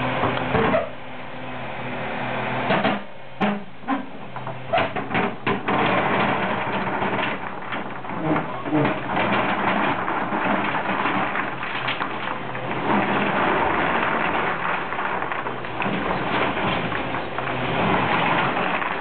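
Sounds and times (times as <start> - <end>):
cobblestones clattering out of bucket: 4.8 - 19.0.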